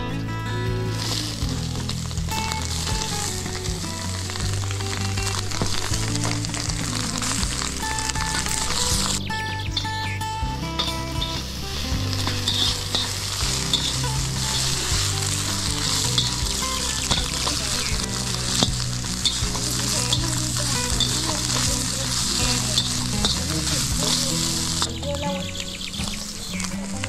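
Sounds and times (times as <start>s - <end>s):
food sizzling in a wok: 11.4s - 25.0s.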